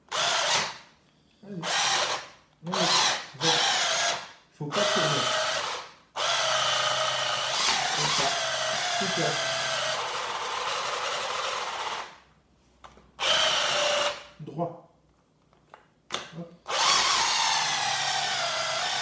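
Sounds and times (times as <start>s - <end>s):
food chopper motor whining: 4.8s - 12.2s, 16.7s - 19.0s.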